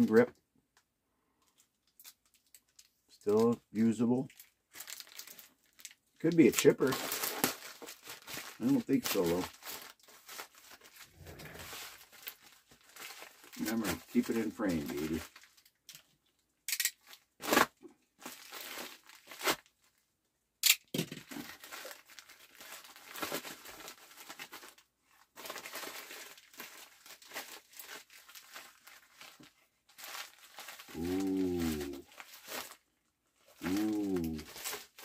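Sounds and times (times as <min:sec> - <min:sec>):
plastic wrap crinkling and tearing: 0:01.5 - 0:20.1, 0:21.2 - 0:35.0
man humming: 0:30.9 - 0:32.0, 0:33.6 - 0:34.5.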